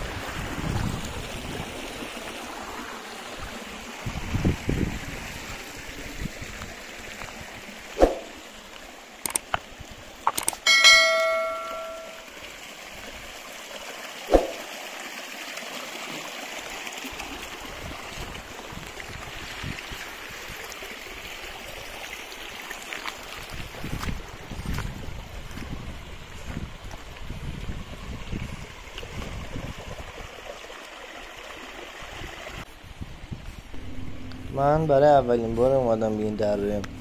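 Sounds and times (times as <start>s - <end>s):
stream running over stones: 0.0s - 32.7s
metal object ringing: 10.6s - 12.3s.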